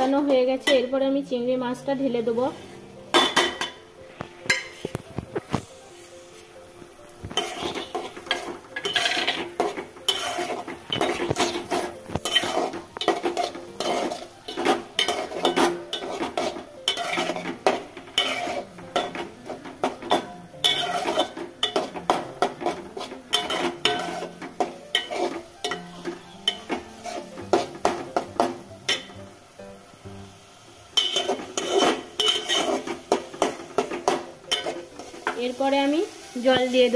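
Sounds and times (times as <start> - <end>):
steel spatula scraping a pot: 7.3 - 29.1, 31.0 - 35.4.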